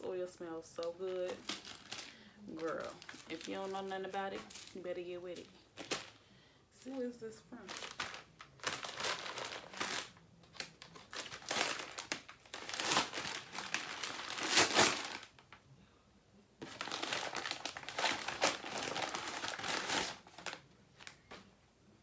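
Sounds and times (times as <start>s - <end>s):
paper package crinkling: 1.1s - 6.2s, 7.6s - 15.6s, 16.6s - 21.4s.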